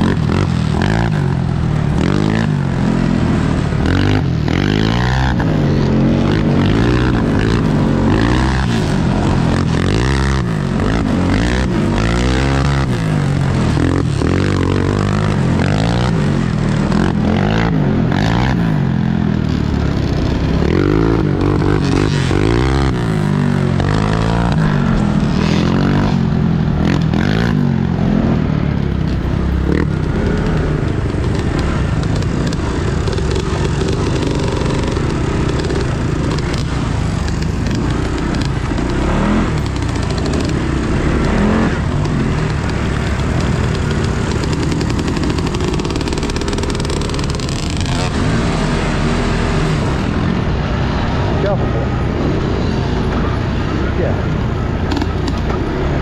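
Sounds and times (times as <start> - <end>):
off-road vehicle engine: 0.0 - 56.0
knocks and rattles over rough ground: 28.6 - 50.2.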